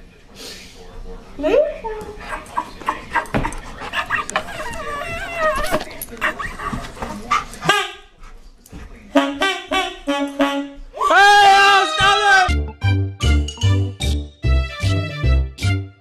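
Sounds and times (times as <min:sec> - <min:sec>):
dog whining and yowling: 0:04.5 - 0:05.8.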